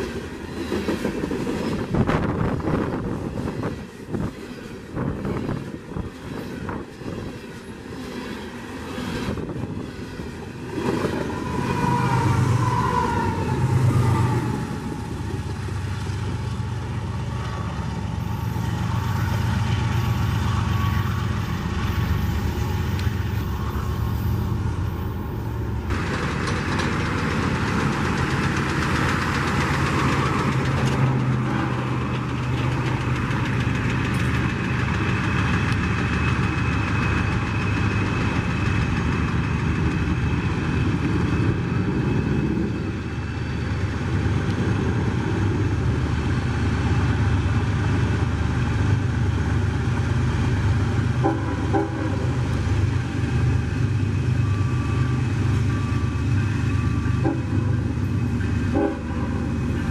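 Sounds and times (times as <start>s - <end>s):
diesel locomotive engine rumbling: 0.0s - 59.9s.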